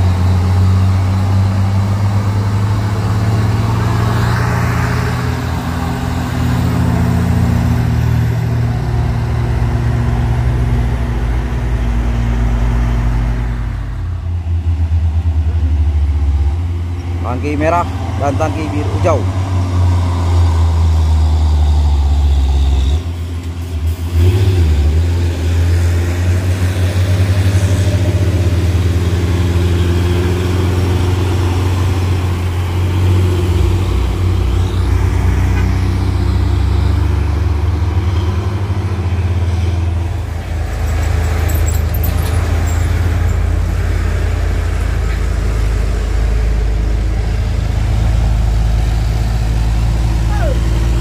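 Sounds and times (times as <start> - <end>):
truck diesel engines running hard: 0.0 - 51.0.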